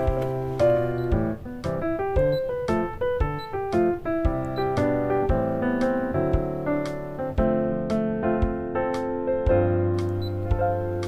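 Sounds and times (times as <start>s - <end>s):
sharp clicks on the beat: 0.0s - 7.0s
piano music: 0.0s - 11.0s.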